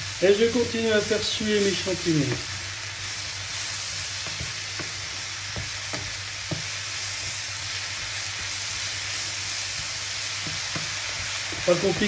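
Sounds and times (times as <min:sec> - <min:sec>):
vegetables sizzling in frying pan: 0:00.0 - 0:12.0
wooden spatula knocking pan: 0:02.2 - 0:02.5, 0:04.1 - 0:08.8, 0:09.8 - 0:12.0.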